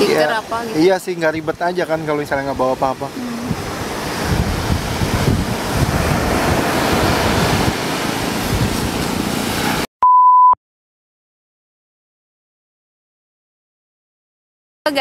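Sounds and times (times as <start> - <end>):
ocean surf breaking: 0.0 - 9.9
wind buffeting microphone: 2.4 - 9.8
short electronic beep: 10.0 - 10.6.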